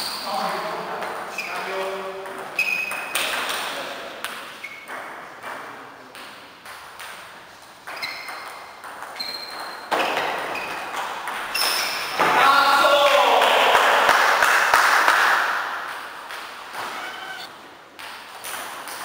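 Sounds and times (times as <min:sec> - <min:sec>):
table tennis ball hits: 0:01.0 - 0:12.4, 0:15.1 - 0:19.0.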